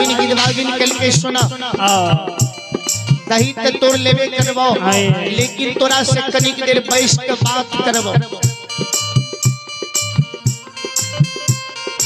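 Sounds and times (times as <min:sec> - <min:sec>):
drum beat: 0:00.0 - 0:12.0
held melody notes: 0:00.0 - 0:12.0.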